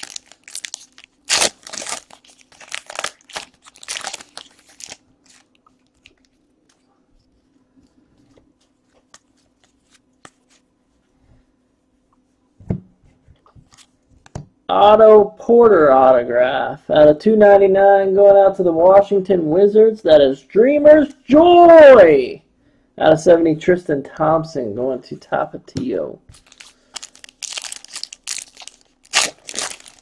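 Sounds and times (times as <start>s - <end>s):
foil wrapper crinkling and tearing: 0.0s - 6.4s, 26.3s - 30.0s.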